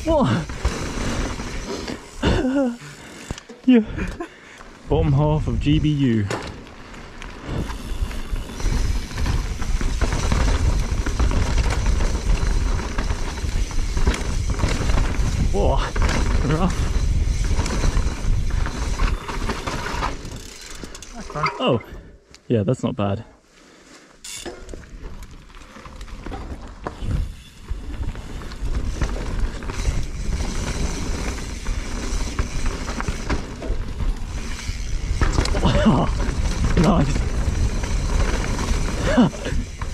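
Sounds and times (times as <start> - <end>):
bike rattling and clicking: 0.0 - 21.8, 24.2 - 39.9
tyres rolling over dirt: 0.0 - 21.8, 24.4 - 39.9
wind rumbling on microphone: 7.4 - 20.5.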